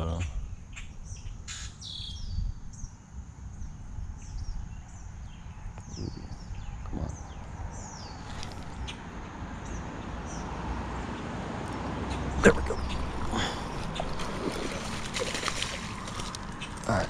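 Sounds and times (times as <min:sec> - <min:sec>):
birds calling: 0:00.0 - 0:03.0, 0:03.6 - 0:17.0
steady low rumble: 0:12.4 - 0:17.0.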